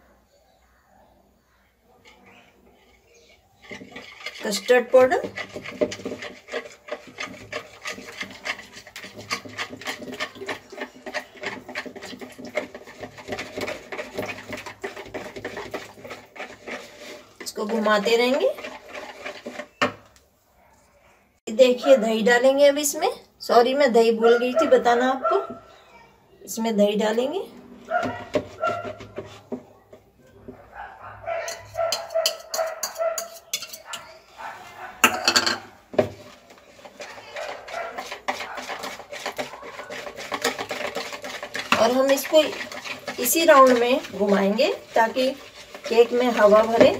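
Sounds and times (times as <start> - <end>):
whisk beating batter in bowl: 2.7 - 20.1, 27.9 - 30.0, 31.5 - 33.9, 35.1 - 46.9
spoon clicking against bowls: 31.4 - 34.1.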